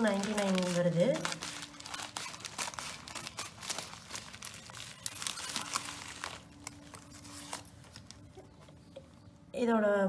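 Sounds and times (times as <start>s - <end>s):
plastic mailer crinkling: 0.0s - 9.2s.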